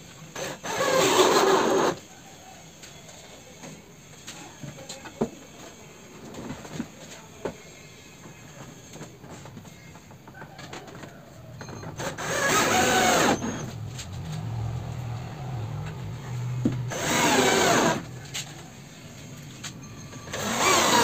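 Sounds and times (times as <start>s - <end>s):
cordless drill driving screws: 0.4s - 2.0s, 12.0s - 13.7s, 16.9s - 18.1s, 20.3s - 21.0s.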